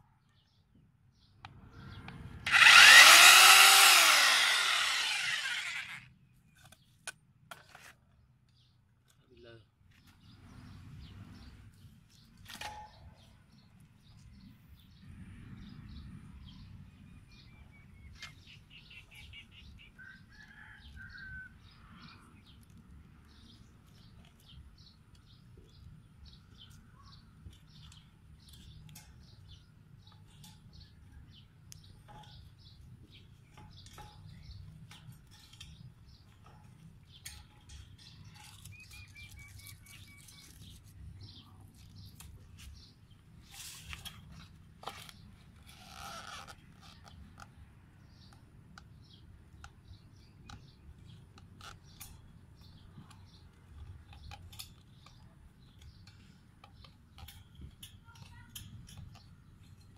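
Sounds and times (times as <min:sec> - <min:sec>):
birds chirping: 0:23.3 - 0:59.9.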